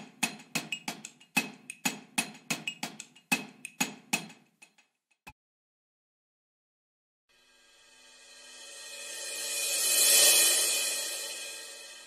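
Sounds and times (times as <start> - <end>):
sharp rhythmic ticks: 0.0 - 5.3.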